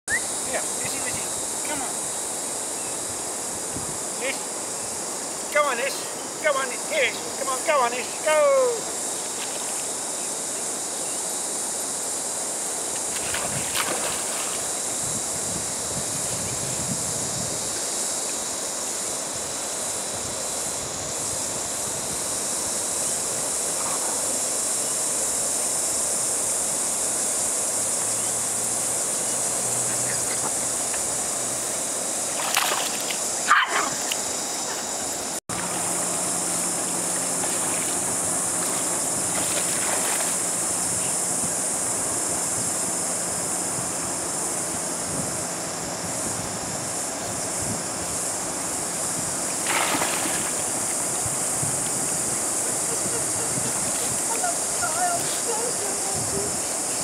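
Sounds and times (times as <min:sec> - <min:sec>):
constant high hiss: 0:00.1 - 0:57.0
wind and water noise: 0:00.1 - 0:57.0
dog splashing in water: 0:13.1 - 0:14.7, 0:32.4 - 0:34.1, 0:37.0 - 0:40.4, 0:49.6 - 0:50.8.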